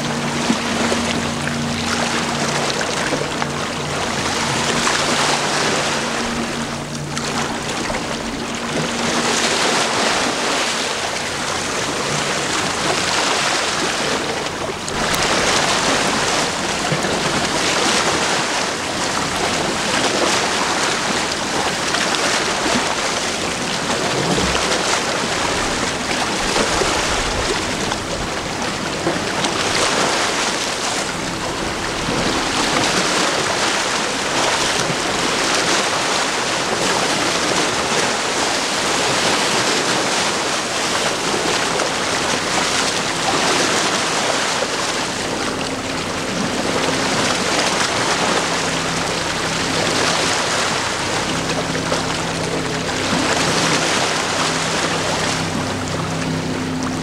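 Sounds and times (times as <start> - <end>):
choppy water: 0.0 - 57.0
wind: 0.0 - 57.0.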